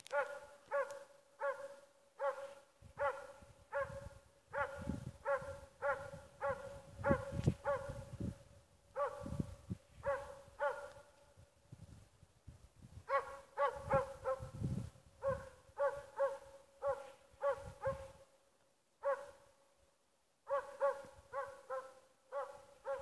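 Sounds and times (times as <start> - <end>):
dog barking: 0.0 - 8.1, 9.0 - 11.1, 13.1 - 14.6, 15.2 - 18.2, 19.0 - 19.5, 20.4 - 23.0.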